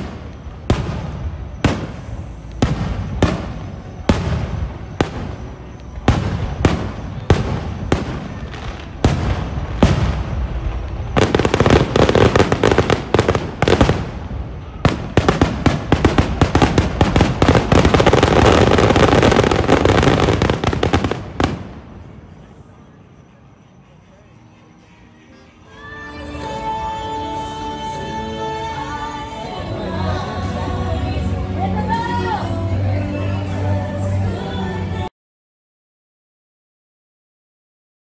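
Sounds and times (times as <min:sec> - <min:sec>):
fireworks bursting with bangs: 0:00.0 - 0:22.4
fireworks crackling: 0:00.0 - 0:22.7.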